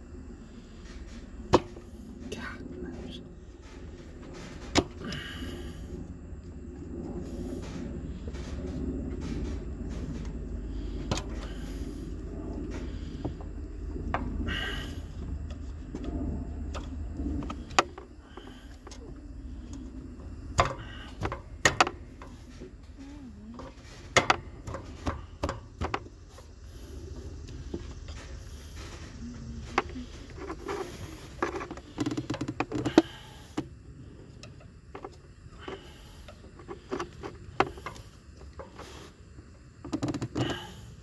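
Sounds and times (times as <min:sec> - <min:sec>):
low steady rumble: 0:00.0 - 0:41.0
sharp clicks and knocks: 0:27.4 - 0:33.7.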